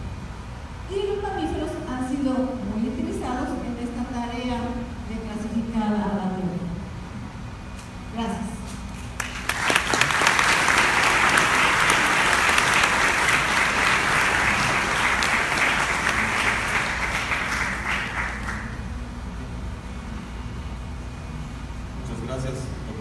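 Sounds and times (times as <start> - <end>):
audience applauding: 9.2 - 18.9.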